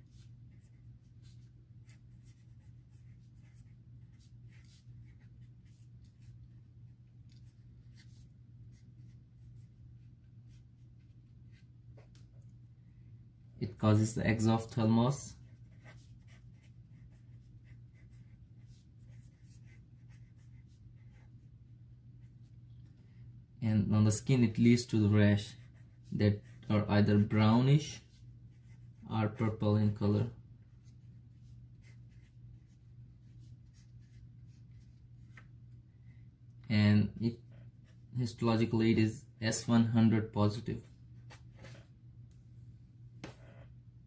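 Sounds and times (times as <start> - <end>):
pen scratching on paper: 0.0 - 6.6, 15.4 - 21.4, 25.4 - 27.3, 28.1 - 29.6, 30.8 - 35.4
steady low hum: 0.0 - 44.0.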